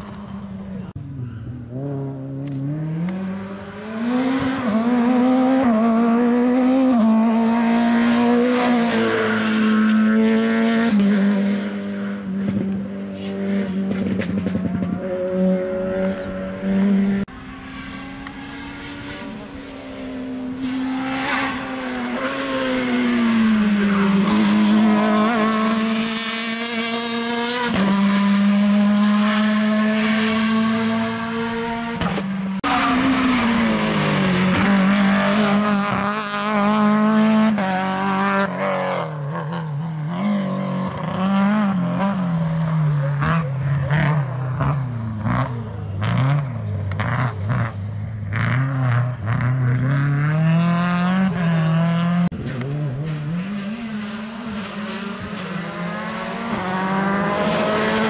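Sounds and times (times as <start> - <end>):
rally car engine accelerating: 0.0 - 58.0.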